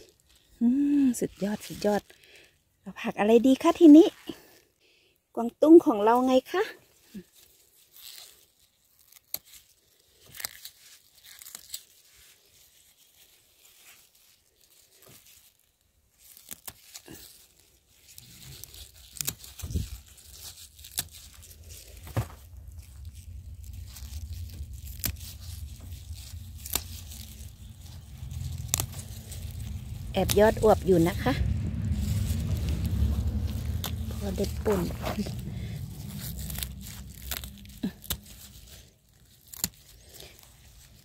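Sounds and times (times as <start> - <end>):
bok choy stems snapping: 16.2 - 17.6, 18.5 - 41.0
low rumble: 21.2 - 41.0.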